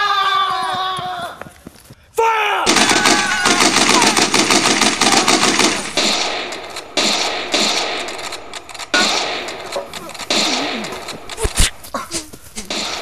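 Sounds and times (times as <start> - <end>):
machine-gun burst: 2.7 - 11.8
single rifle shots: 2.7 - 11.8, 12.6 - 13.0.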